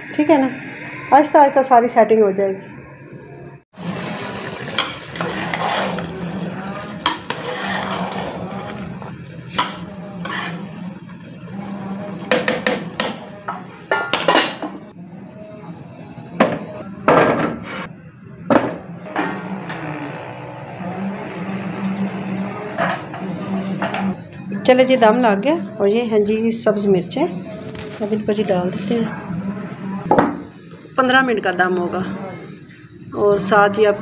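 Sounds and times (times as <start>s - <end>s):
metal spoon scraping a pot: 4.6s - 13.3s.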